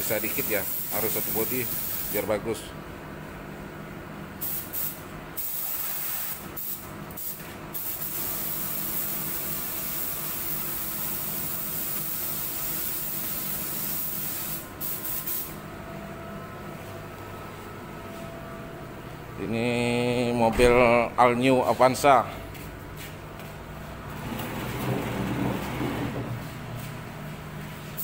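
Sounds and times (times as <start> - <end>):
paint spray gun hissing: 0.2 - 2.2, 4.4 - 15.6
steady low hum: 12.6 - 28.0.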